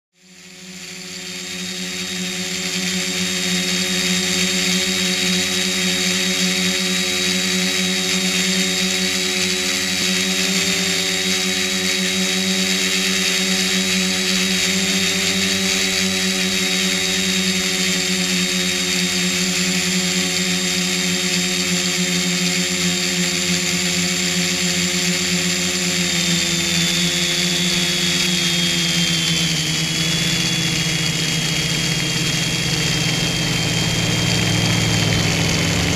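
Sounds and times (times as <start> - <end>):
drone motors whining: 0.2 - 35.9.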